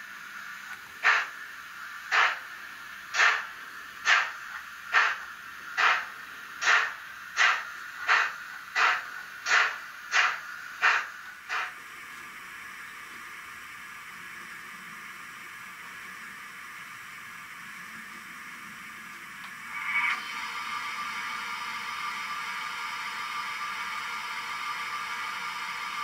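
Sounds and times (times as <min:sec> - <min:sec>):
steady hiss: 0:00.0 - 0:20.1
model steam locomotive chuffs: 0:00.0 - 0:26.0.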